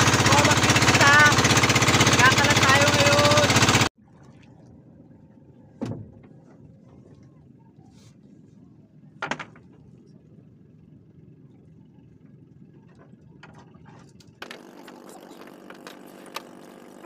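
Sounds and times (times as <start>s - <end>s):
steady low hum: 4.1s - 15.6s.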